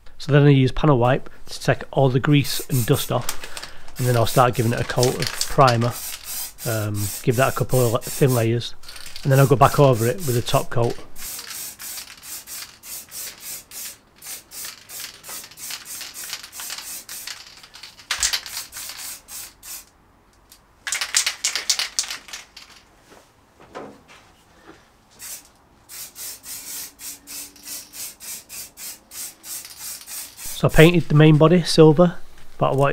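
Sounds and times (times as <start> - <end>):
spray can ball rattling: 2.5 - 20.0, 20.8 - 22.9, 25.2 - 31.4
spray hiss: 5.9 - 10.6, 11.2 - 17.3, 25.2 - 30.8.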